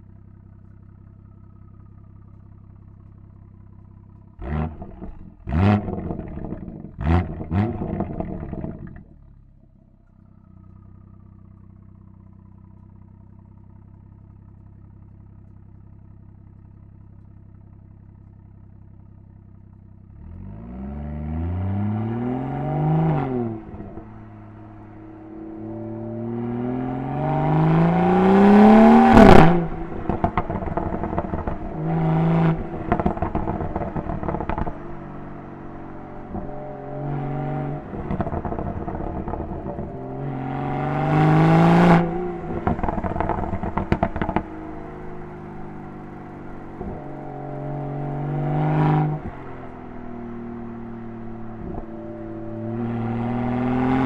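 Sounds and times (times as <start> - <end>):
car engine idling and revving: 0.0 - 54.0
exhaust pops and crackles: 0.6 - 9.2, 29.1 - 36.6, 37.8 - 40.3, 42.0 - 47.3, 51.2 - 52.3
exhaust crack on upshift: 4.1 - 9.2, 27.7 - 52.8.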